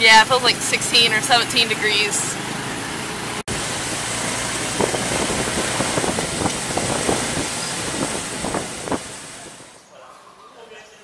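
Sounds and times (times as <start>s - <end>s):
engine and road noise: 0.0s - 9.8s.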